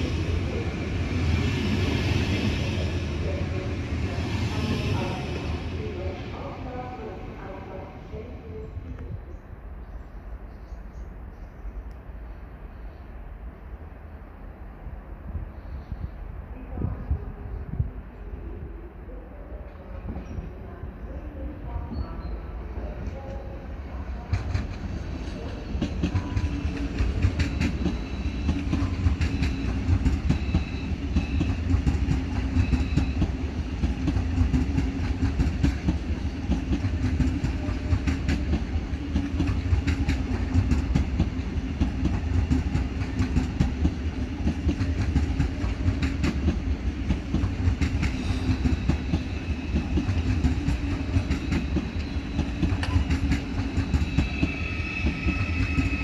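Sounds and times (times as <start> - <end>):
train rumbling past: 0.0 - 56.0
high squeal: 53.9 - 56.0.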